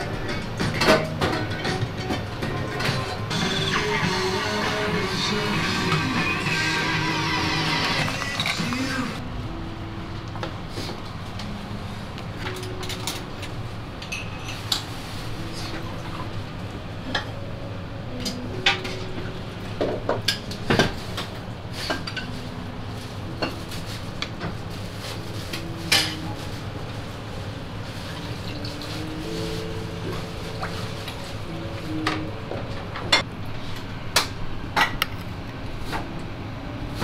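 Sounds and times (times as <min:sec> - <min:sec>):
dishes and cutlery clinking: 0:00.0 - 0:03.2, 0:12.4 - 0:16.0, 0:25.5 - 0:26.4
low background hum: 0:00.0 - 0:37.0.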